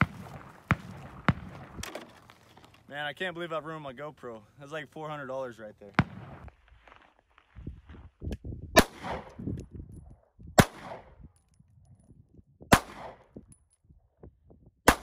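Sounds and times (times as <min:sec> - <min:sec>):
pistol shots with echo: 0:08.8 - 0:09.4, 0:10.6 - 0:11.1, 0:12.7 - 0:13.3.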